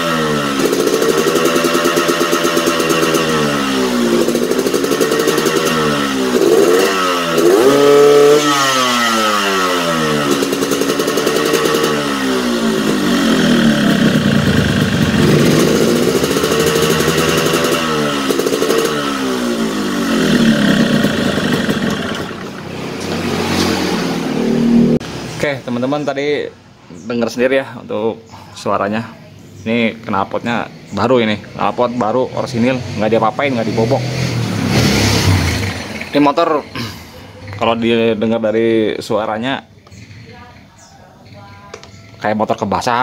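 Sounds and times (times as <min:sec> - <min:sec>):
two-stroke motorcycle engine revving: 0:00.0 - 0:25.3, 0:30.4 - 0:38.2.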